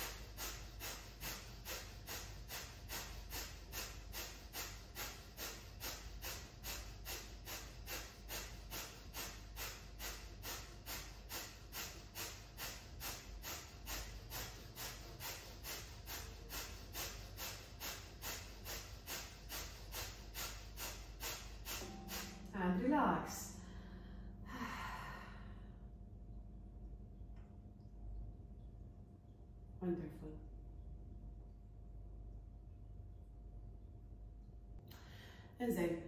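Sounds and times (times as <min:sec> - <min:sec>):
quick forceful nose breaths: 0:00.0 - 0:22.4.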